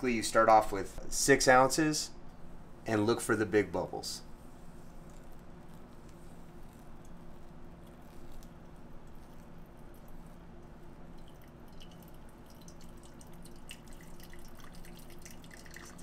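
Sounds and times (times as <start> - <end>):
water trickling onto coffee grounds: 3.0 - 16.0
small drips: 5.0 - 16.0.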